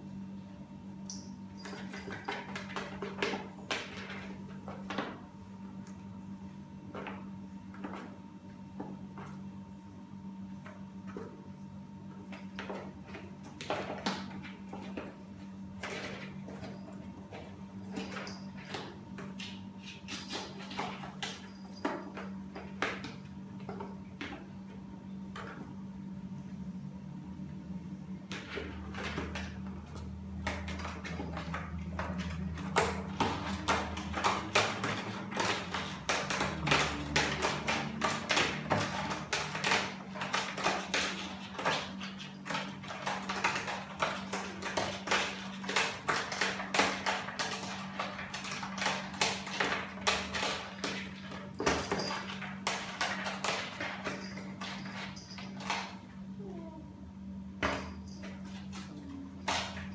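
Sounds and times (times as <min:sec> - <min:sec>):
paws and claws tapping on tiles: 0:01.1 - 0:06.1, 0:12.1 - 0:25.8, 0:28.3 - 0:56.5.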